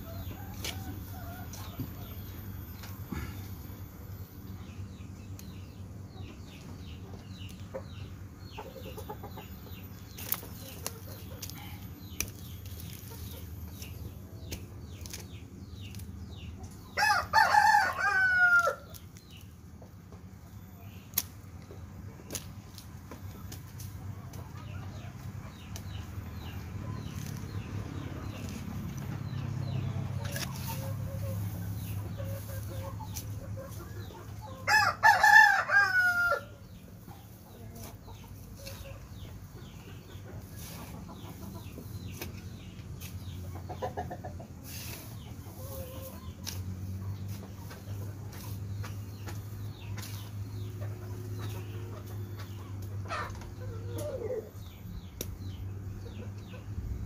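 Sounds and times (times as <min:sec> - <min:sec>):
rooster crowing: 0:17.0 - 0:18.9, 0:34.6 - 0:36.6.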